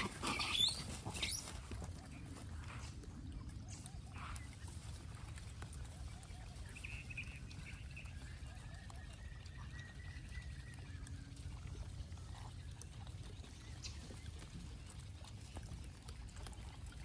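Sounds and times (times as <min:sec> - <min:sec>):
animal chatter: 0:00.0 - 0:09.9
faint animal calls: 0:00.0 - 0:12.6.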